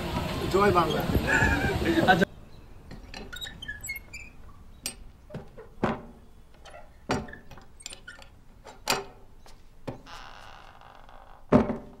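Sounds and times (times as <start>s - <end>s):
knocks and thumps: 5.3s - 6.2s, 11.5s - 12.0s.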